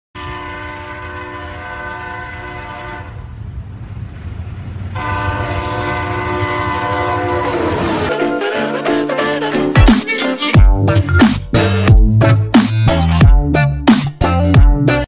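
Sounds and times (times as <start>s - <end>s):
low rumble: 3.1s - 8.1s
loud horn-like chord: 5.0s - 10.9s.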